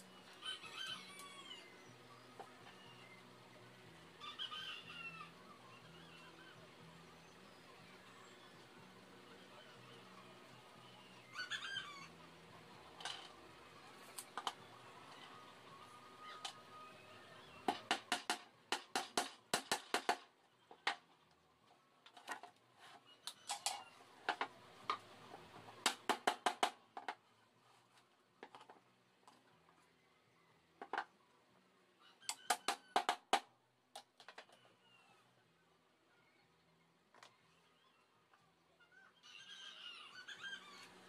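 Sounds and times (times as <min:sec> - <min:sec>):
hammer tapping nail into wood: 0:17.7 - 0:20.2.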